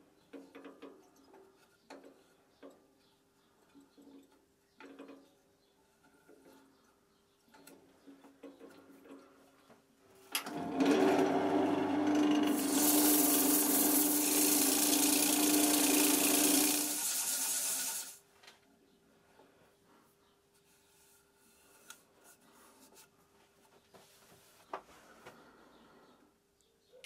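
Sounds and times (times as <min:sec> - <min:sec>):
wood lathe humming: 0:10.5 - 0:18.2
sandpaper sanding hiss: 0:12.5 - 0:15.3.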